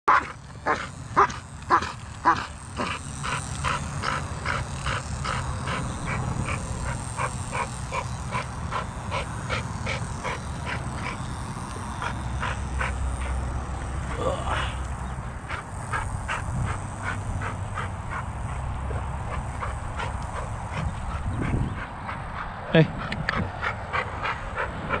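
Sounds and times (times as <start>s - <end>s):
dog barking rapidly: 0.1s - 11.2s.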